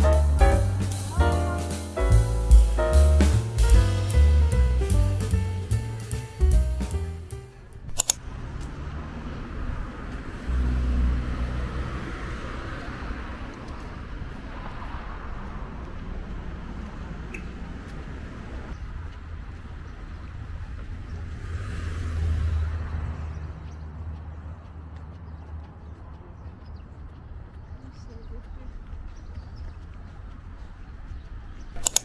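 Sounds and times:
traffic rumble: 0.0 - 32.0
sharp click: 7.9 - 8.2, 31.8 - 32.0.

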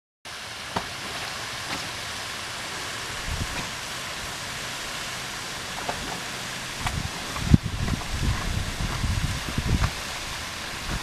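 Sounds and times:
waterfalls rushing into a pool: 0.3 - 11.0.

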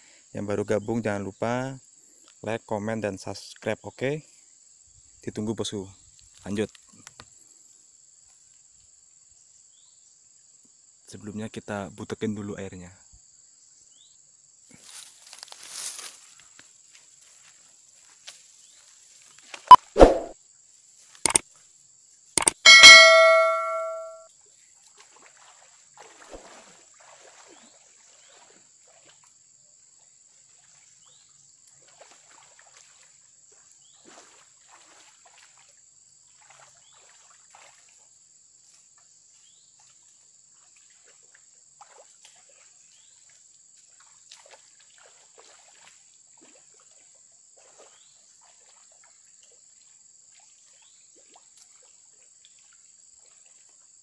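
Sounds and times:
ringing metallic clang: 22.5 - 24.2
water trickling in ditch: 24.8 - 29.4, 30.5 - 38.9, 39.8 - 53.8.

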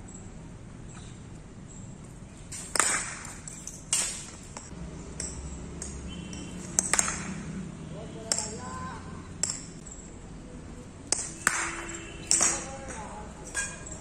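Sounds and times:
cricket bat knocking ball: 5.2 - 7.6, 11.1 - 13.8.

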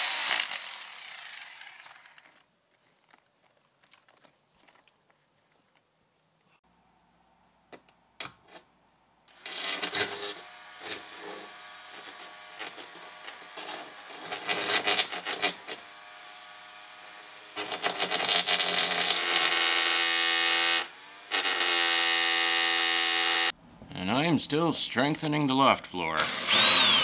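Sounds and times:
power tool clattering and rasping: 0.0 - 2.4, 9.3 - 23.5, 26.2 - 27.0.

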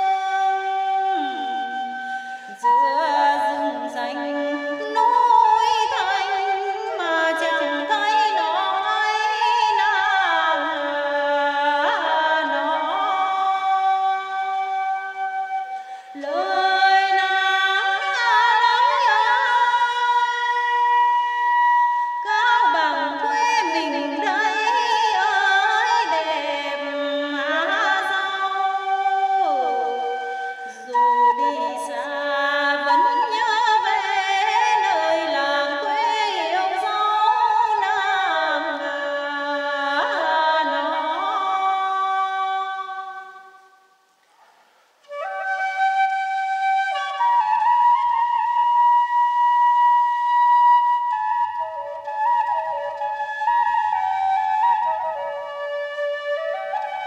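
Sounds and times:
woman singing a folk song: 0.0 - 14.9, 15.9 - 21.1, 22.2 - 43.6.

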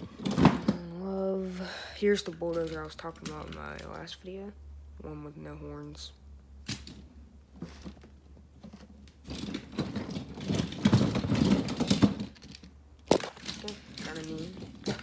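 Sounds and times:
toy trucks clattering together: 2.0 - 4.1, 8.6 - 15.0.

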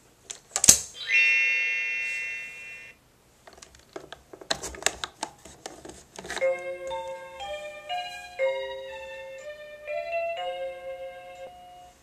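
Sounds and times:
electronic tone: 1.0 - 3.0.

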